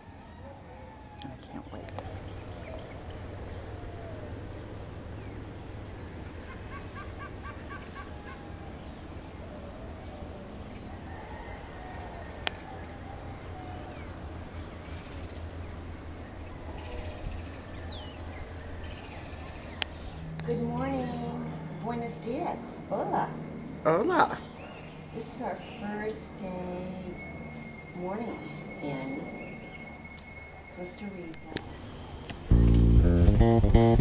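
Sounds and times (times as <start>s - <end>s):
birds calling and chirping: 0.0s - 34.0s
low rumble: 12.7s - 34.0s.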